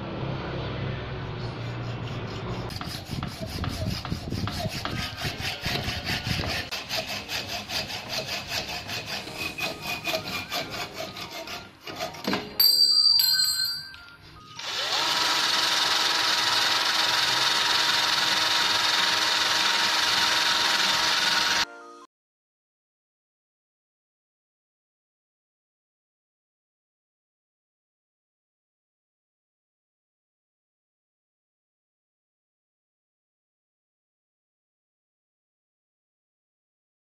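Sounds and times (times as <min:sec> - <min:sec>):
cut-off disc grinding metal: 0:01.4 - 0:12.8
hacksaw cutting metal: 0:01.6 - 0:12.8, 0:14.7 - 0:21.7.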